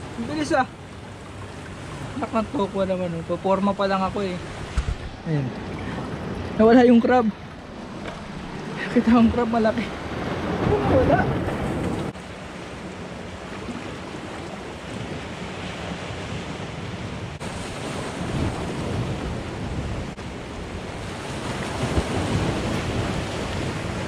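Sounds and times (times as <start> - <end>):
wind buffeting microphone: 4.1 - 12.2, 13.7 - 24.0
surf breaking on rocky shore: 17.4 - 24.0.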